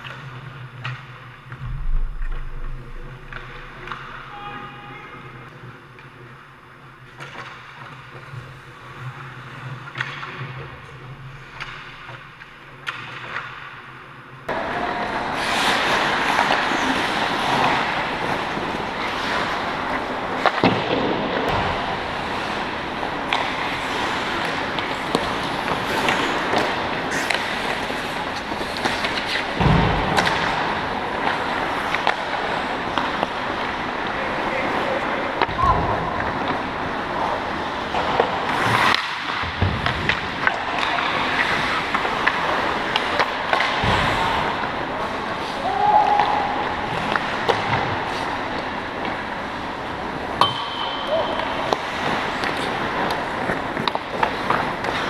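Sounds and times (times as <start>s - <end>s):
low thump: 1.6s - 4.3s
hockey sticks and puck clacking: 7.1s - 55.0s
skate blades scraping ice: 14.7s - 21.1s, 21.7s - 35.4s, 36.3s - 45.6s, 51.6s - 55.0s.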